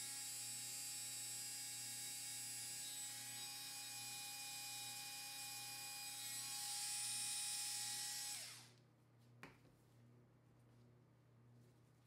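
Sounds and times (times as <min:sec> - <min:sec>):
electric mixer motor whining: 0:03.1 - 0:08.7.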